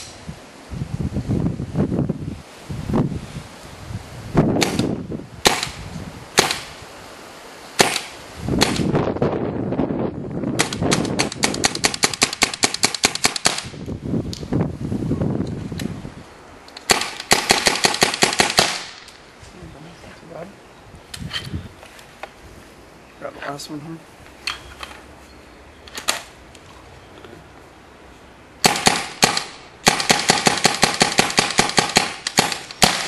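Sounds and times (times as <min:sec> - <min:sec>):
paintball gun firing: 0:04.6 - 0:05.8, 0:06.4 - 0:06.7, 0:07.8 - 0:08.9, 0:10.6 - 0:13.8, 0:16.8 - 0:19.0, 0:28.6 - 0:33.0.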